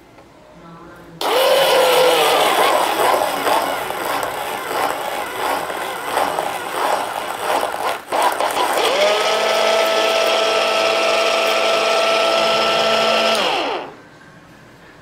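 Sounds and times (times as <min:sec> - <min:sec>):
pencil sharpener motor whirring: 0:01.2 - 0:14.0.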